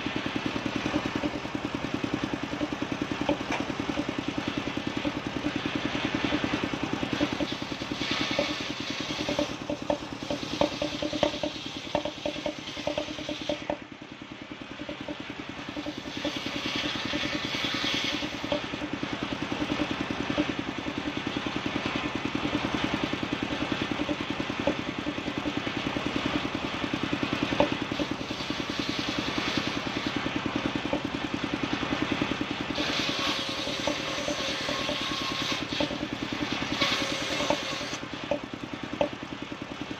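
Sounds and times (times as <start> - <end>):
circular saw cutting wood: 0.0 - 14.0, 14.6 - 39.6
wooden boards knocking: 0.9 - 1.4, 8.3 - 13.8.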